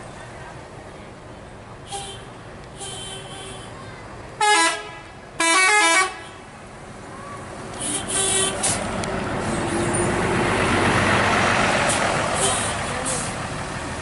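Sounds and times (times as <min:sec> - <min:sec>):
coach engine and road noise: 0:00.0 - 0:14.0
musical bus horn: 0:01.9 - 0:03.7, 0:04.4 - 0:06.5, 0:07.8 - 0:08.8, 0:12.3 - 0:12.8.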